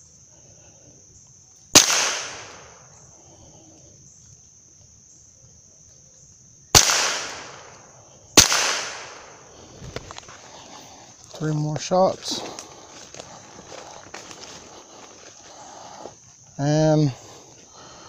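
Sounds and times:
high insect drone: 0.0 - 18.0
rifle shots echoing: 1.7 - 2.9, 6.7 - 9.5.

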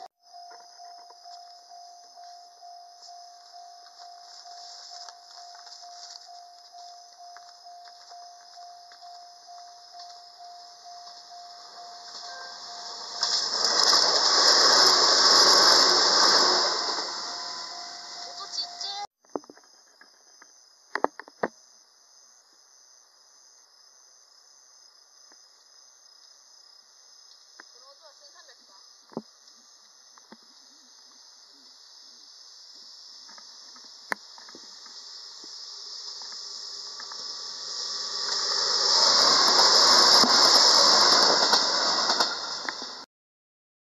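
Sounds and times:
electric train passing: 0.0 - 19.1, 34.6 - 43.0
insects chirping: 0.0 - 43.0.

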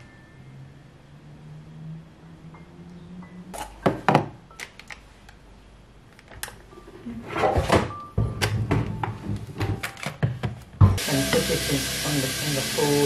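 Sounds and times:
items clattering: 6.2 - 11.0.

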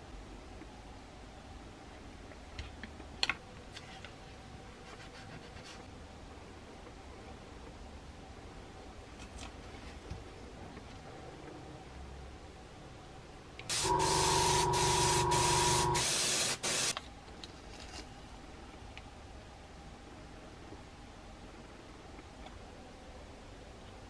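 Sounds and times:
faint steady hiss: 0.0 - 24.0
low hum: 13.7 - 16.0
airbrush spraying hiss: 13.7 - 17.0.

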